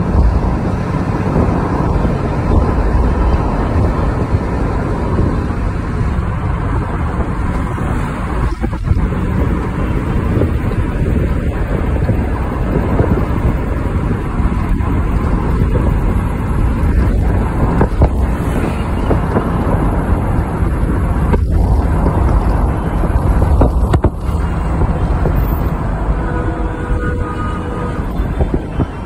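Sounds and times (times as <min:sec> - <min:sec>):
vehicle road and engine rumble: 0:00.0 - 0:29.0
wind buffeting microphone: 0:00.0 - 0:29.0
steady pitched tone: 0:19.9 - 0:29.0.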